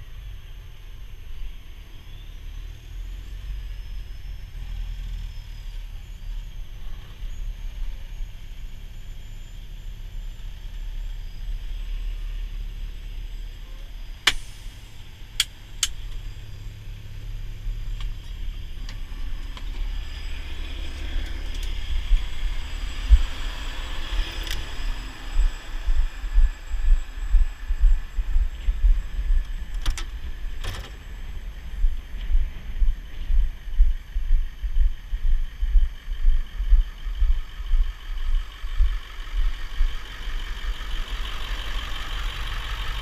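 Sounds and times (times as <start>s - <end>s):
diesel engine idling: 0.0s - 43.0s
low footstep thumps: 25.4s - 37.8s.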